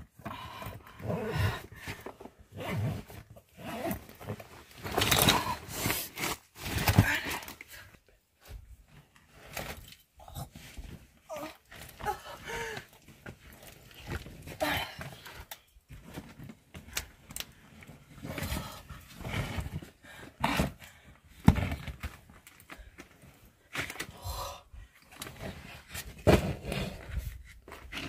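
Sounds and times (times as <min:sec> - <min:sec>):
woman panting and gasping: 0:00.2 - 0:02.2, 0:11.3 - 0:13.1, 0:14.4 - 0:15.6.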